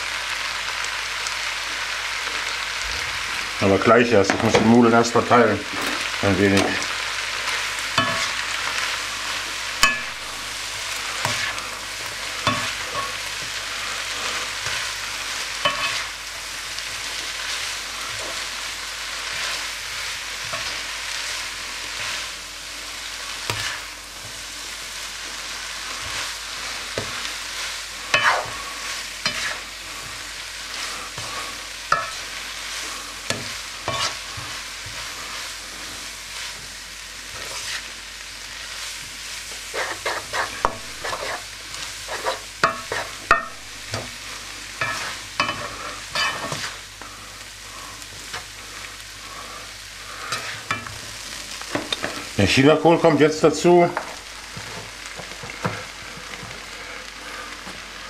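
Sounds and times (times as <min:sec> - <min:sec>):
vegetables sizzling in a wok: 0:00.0 - 0:58.0
spatula scraping and knocking pan: 0:07.9 - 0:08.4, 0:09.8 - 0:13.6, 0:15.6 - 0:16.1, 0:23.4 - 0:24.5, 0:26.8 - 0:27.4, 0:28.1 - 0:35.2, 0:39.7 - 0:41.5, 0:42.1 - 0:44.2, 0:44.8 - 0:46.8, 0:50.3 - 0:51.1.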